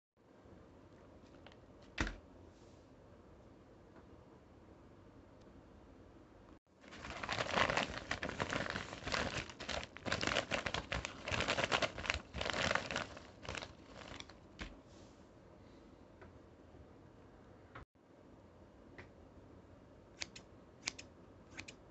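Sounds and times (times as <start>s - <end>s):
padded mailer crinkling: 6.8s - 14.7s.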